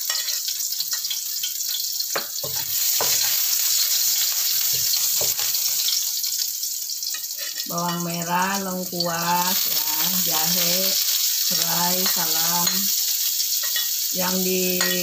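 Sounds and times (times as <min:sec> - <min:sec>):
spatula scraping and knocking a wok: 0:00.0 - 0:06.0, 0:07.1 - 0:08.0
shallots sizzling in oil: 0:00.0 - 0:15.0.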